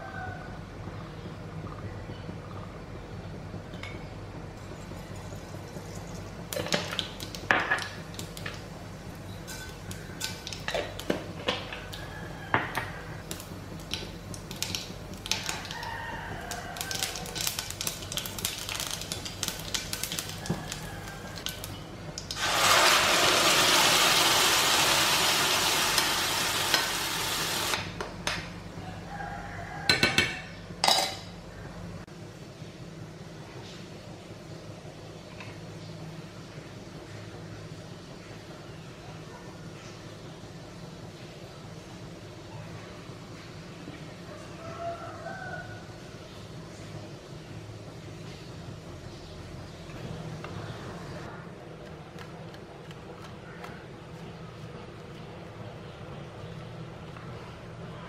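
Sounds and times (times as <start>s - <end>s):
spices crackling in hot oil: 4.7s - 12.1s, 13.2s - 27.8s
loud sizzle in frying pan: 13.2s - 27.8s.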